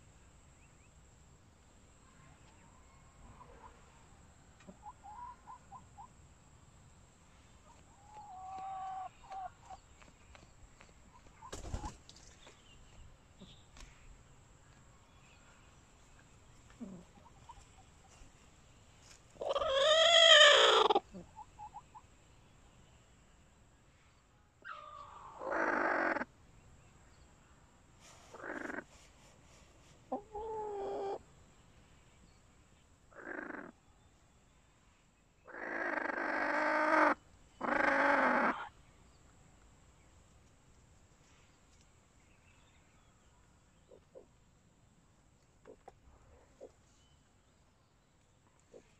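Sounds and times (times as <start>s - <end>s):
chickens calling: 11.1s - 12.0s, 19.3s - 22.1s, 30.1s - 31.2s, 35.5s - 38.7s.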